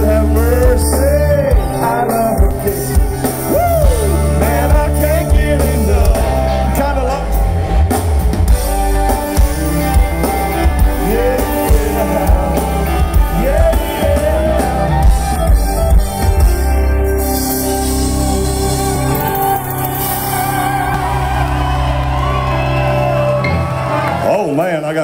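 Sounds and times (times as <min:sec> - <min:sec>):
person singing: 0:00.0 - 0:07.9, 0:09.5 - 0:16.2
country rock band playing: 0:00.0 - 0:25.0.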